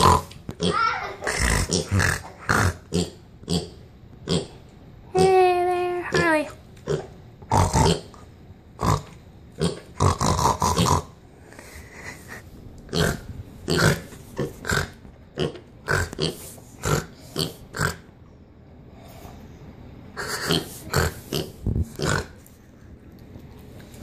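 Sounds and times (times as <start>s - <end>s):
pig grunting: 0.0s - 3.7s, 8.8s - 11.1s, 12.9s - 18.0s, 20.2s - 22.4s.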